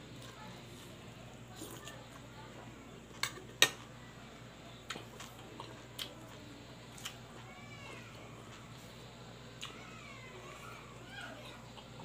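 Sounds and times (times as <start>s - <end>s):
chewing with mouth clicks: 4.8s - 7.5s, 11.4s - 12.0s.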